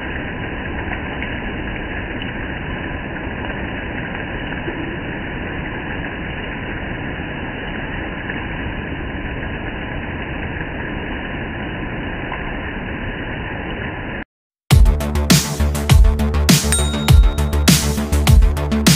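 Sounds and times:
rain on gravel and foliage: 0.0s - 12.6s.

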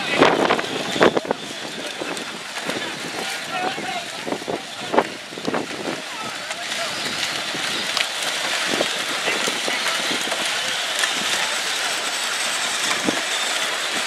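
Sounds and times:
electric toy car motors whirring: 6.9s - 14.0s.

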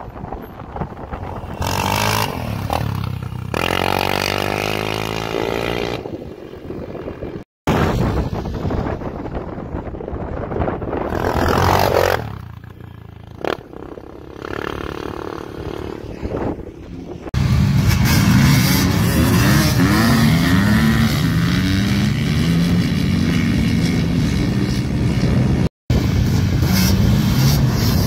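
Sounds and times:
quad engine revving: 1.4s - 6.1s, 11.1s - 12.5s, 17.4s - 25.7s.

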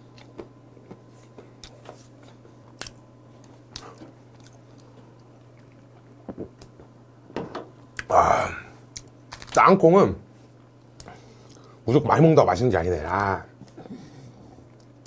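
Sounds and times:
person chewing peanuts: 0.0s - 6.9s.

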